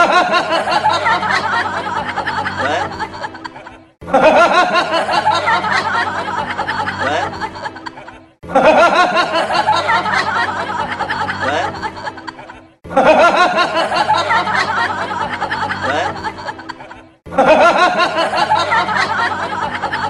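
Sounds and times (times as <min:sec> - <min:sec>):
music: 0:00.0 - 0:20.0
person giggling: 0:00.0 - 0:20.0.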